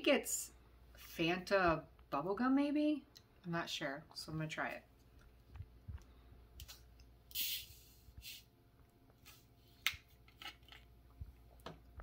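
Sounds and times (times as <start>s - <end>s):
bottle fizzing hiss: 7.3s - 8.5s.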